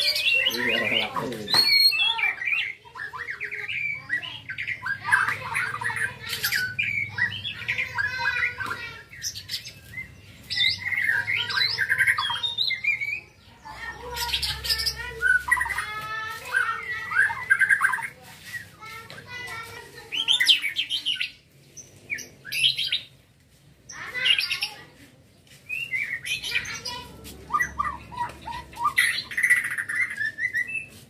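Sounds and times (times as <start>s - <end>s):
bird singing whistles and trills: 1.5s - 4.8s, 25.7s - 26.5s, 27.5s - 31.0s.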